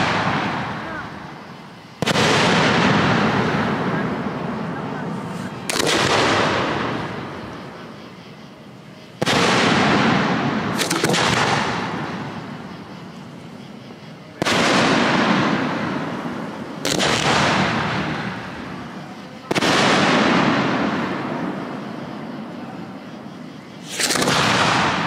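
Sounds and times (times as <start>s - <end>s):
firework shells bursting: 0.0s - 8.0s, 9.1s - 21.7s, 23.7s - 25.0s
sharp cracks: 5.3s - 7.5s, 9.2s - 12.5s, 14.4s - 18.8s, 23.8s - 25.0s.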